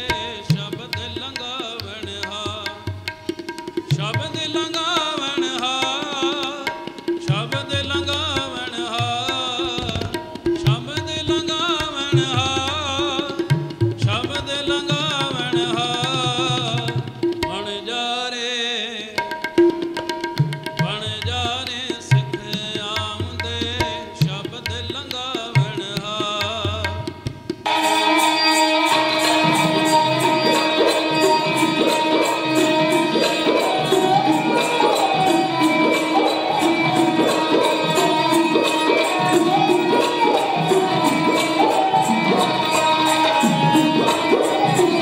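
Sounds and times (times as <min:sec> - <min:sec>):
devotional singing with vibrato: 0:00.0 - 0:03.1, 0:03.9 - 0:19.2, 0:27.7 - 0:45.0
hand drums playing: 0:00.0 - 0:17.7, 0:19.2 - 0:45.0.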